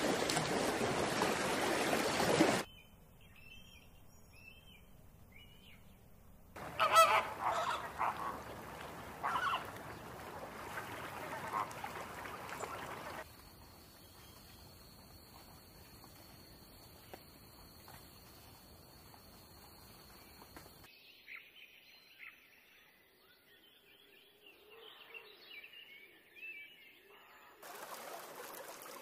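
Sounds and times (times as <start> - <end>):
flamingos honking: 6.6 - 13.2.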